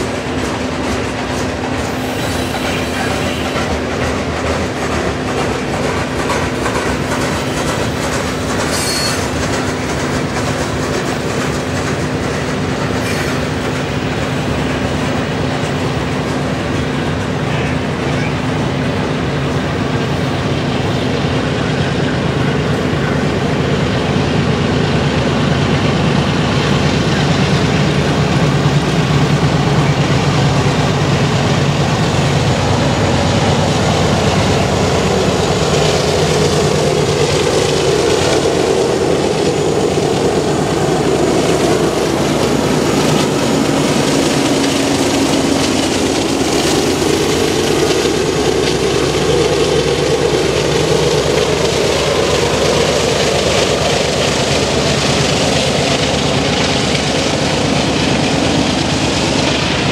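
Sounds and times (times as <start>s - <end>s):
diesel locomotive engine running: 0.0s - 59.9s
freight train rolling on rails: 0.0s - 59.9s.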